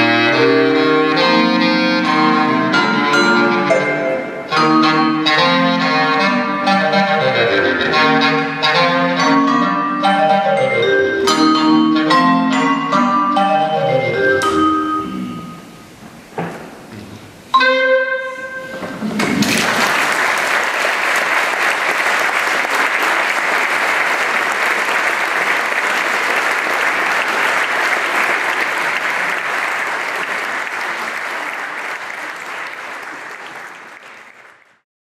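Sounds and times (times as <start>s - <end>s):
clarinet and vibraphone note: 0.0s - 15.9s, 17.5s - 18.9s
audience applause: 19.1s - 34.8s.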